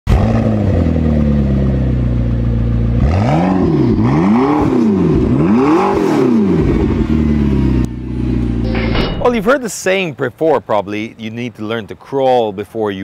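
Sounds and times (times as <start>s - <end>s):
car engine idling and revving: 0.1s - 8.7s.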